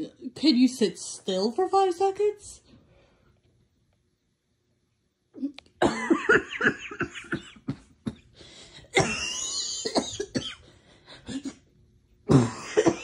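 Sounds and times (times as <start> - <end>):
person coughing: 5.8 - 11.6, 12.3 - 13.0
person laughing wheezily: 11.0 - 11.6.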